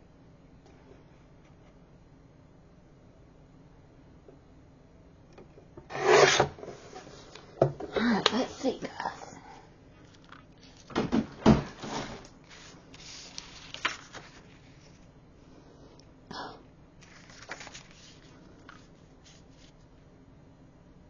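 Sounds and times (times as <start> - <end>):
paper rustling and sliding: 5.9 - 7.4, 11.6 - 15.1, 17.0 - 19.9.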